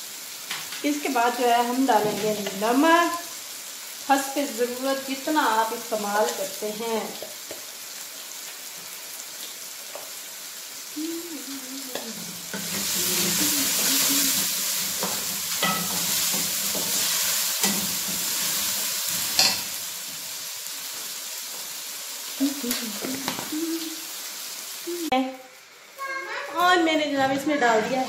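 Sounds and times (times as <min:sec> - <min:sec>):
food sizzling in hot oil: 0:00.0 - 0:28.0.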